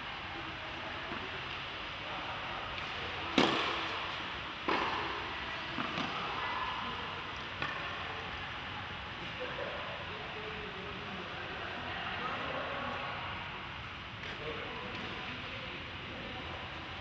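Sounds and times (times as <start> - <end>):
tennis balls struck and bouncing: 2.7 - 6.4, 7.4 - 8.0.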